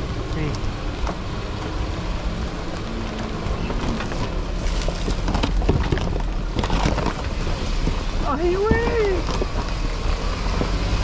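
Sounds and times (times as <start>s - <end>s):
knocks and rattles: 3.6s - 9.8s.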